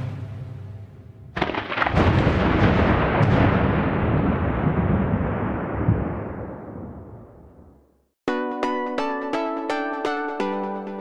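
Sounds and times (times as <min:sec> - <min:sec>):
music: 0:00.0 - 0:01.2, 0:08.3 - 0:11.0
thunder crash and rumble: 0:01.3 - 0:08.0.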